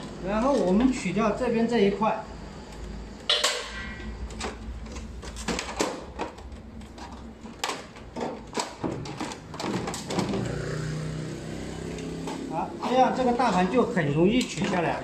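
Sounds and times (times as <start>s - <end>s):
plastic parts knocking and clicking: 3.3s - 10.6s.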